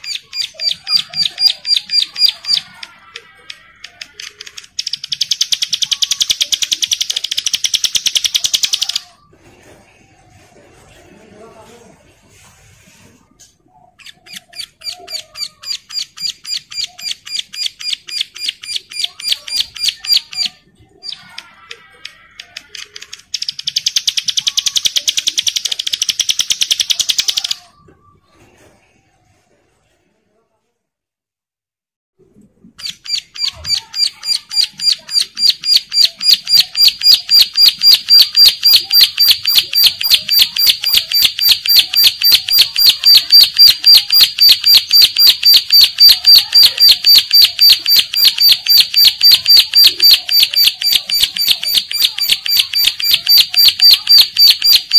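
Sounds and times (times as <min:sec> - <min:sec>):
bird twittering: 0:00.0 - 0:02.8, 0:04.6 - 0:09.1, 0:14.0 - 0:21.4, 0:32.8 - 0:54.9
prinia calling: 0:00.0 - 0:09.2, 0:13.8 - 0:27.7, 0:32.8 - 0:54.9.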